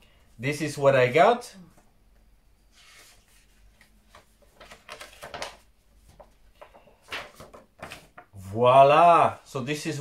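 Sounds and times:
paper rustling: 2.7 - 8.3.

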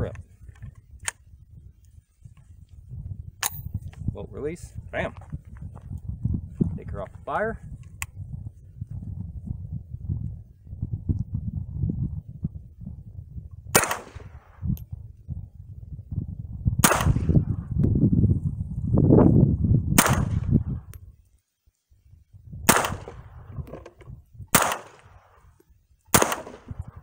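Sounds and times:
rifle shots: 13.7 - 14.6, 16.8 - 17.4, 20.0 - 20.5, 22.7 - 23.4, 24.5 - 25.4, 26.1 - 27.0.

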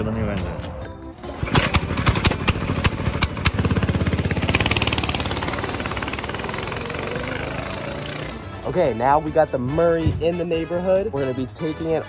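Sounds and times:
go-kart engine revving: 1.2 - 8.6.

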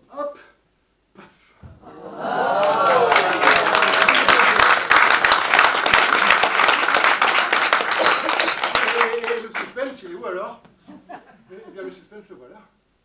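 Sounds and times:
audience applauding: 1.8 - 10.0.

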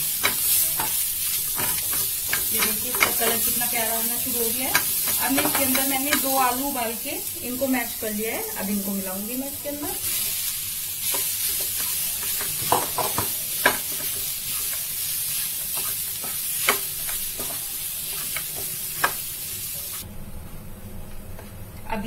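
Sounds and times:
spatula stirring in frying pan: 0.0 - 6.8, 9.8 - 20.0
food sizzling: 0.0 - 20.1.

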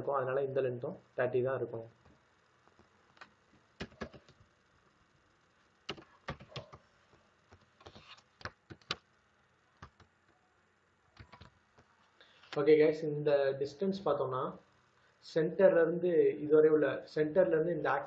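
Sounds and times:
keyboard keystrokes: 3.2 - 4.4, 5.9 - 6.8, 11.2 - 11.5.

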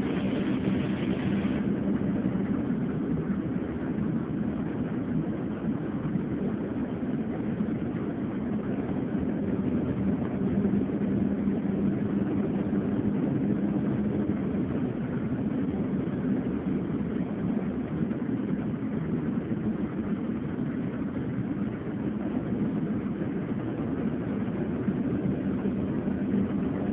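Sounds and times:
vehicle engine hum: 0.0 - 5.2.

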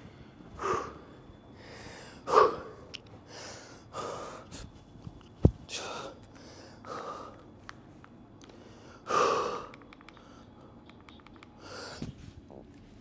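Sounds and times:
man breathing hard: 0.0 - 4.8, 5.7 - 7.5, 8.4 - 10.8, 11.6 - 12.2
faint clicks: 9.7 - 11.6.

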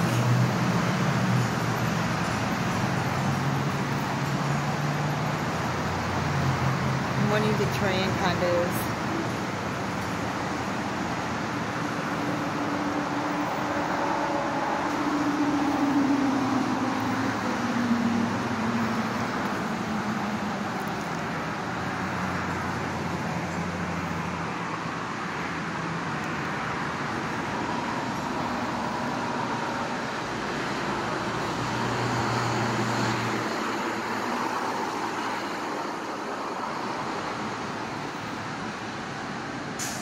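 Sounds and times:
car engines passing: 0.0 - 40.0
tyres hissing on road: 8.5 - 40.0.

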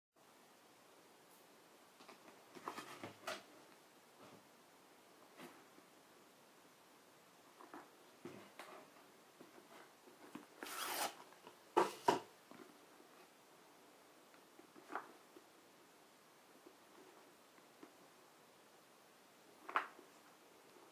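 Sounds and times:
cardboard sliding on cardboard: 10.6 - 11.2.

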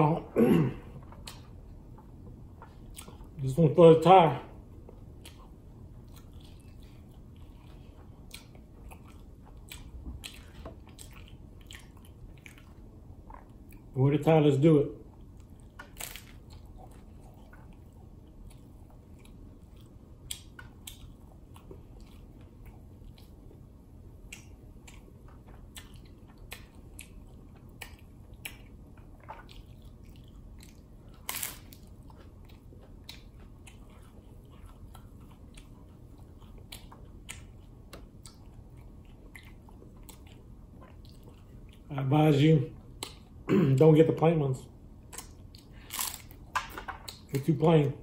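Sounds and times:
low background noise: 0.0 - 48.0
crunchy taco chewing: 4.8 - 13.9, 15.1 - 41.9, 45.0 - 47.5.

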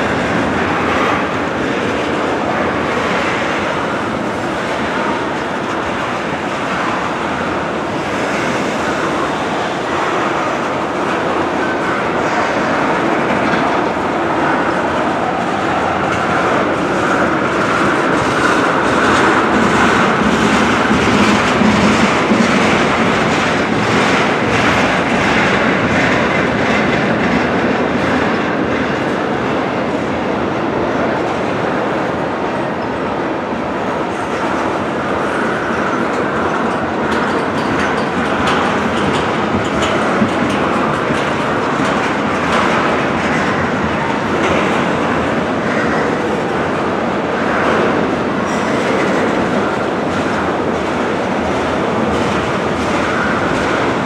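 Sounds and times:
steel wheels rumbling on rail: 0.0 - 54.0
wheels clicking over track: 35.6 - 46.8.

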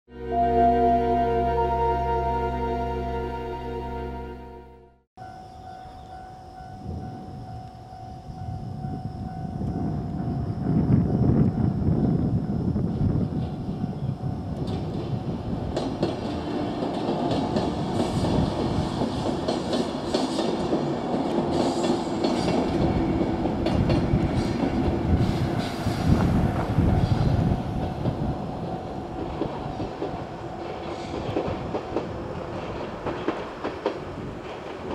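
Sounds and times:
level crossing bell ringing: 0.1 - 4.9
train wheels clacking: 14.6 - 28.3, 29.1 - 34.9.

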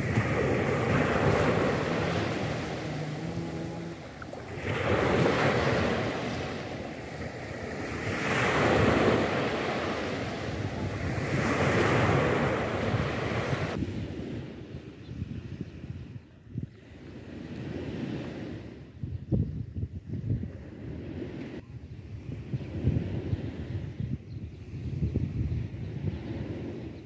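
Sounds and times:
waves washing on pebble beach: 0.0 - 14.3.

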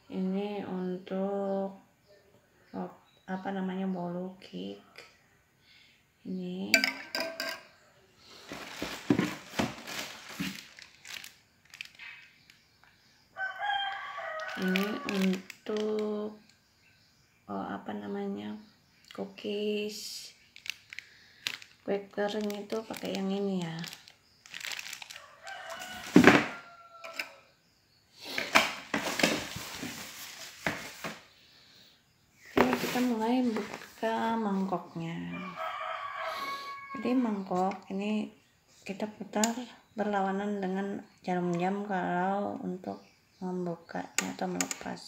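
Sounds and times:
rustling handling noise: 8.3 - 12.4, 13.9 - 16.1, 20.6 - 26.6, 28.4 - 31.3, 32.5 - 34.3
plastic bag crinkling: 8.3 - 12.5, 13.8 - 16.0, 20.4 - 26.5, 28.9 - 31.1.

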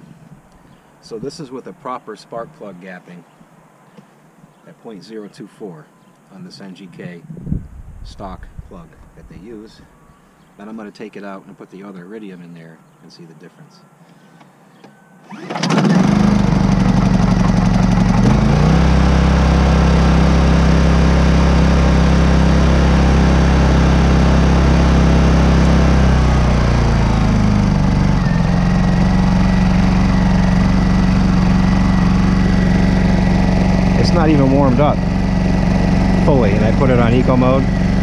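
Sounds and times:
generator engine running: 15.3 - 38.0.

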